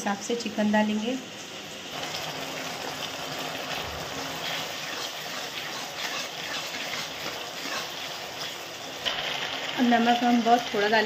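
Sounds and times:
food sizzling in oil: 0.0 - 11.0
spatula stirring: 2.7 - 11.0.

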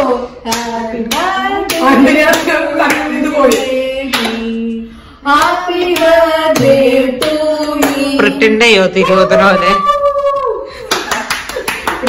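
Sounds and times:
group singing a celebration song: 0.0 - 8.7
hands clapping: 10.4 - 12.0.

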